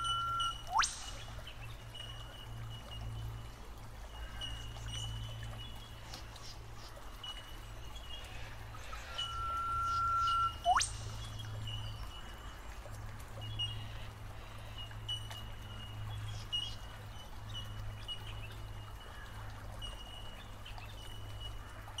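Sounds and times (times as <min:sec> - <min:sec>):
high-pitched insect or bird call: 0:00.0 - 0:01.1, 0:09.2 - 0:10.9
water trickling: 0:00.0 - 0:22.0.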